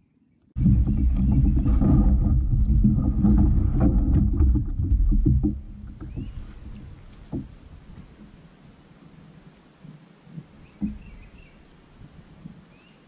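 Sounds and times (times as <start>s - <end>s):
plastic hull grinding on gravel: 0.6s - 7.6s.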